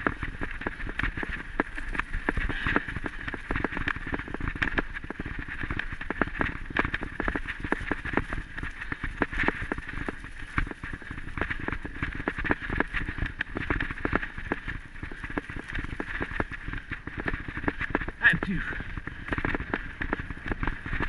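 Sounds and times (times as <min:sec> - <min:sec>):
wheels rumbling on dirt trail: 0:00.0 - 0:21.0.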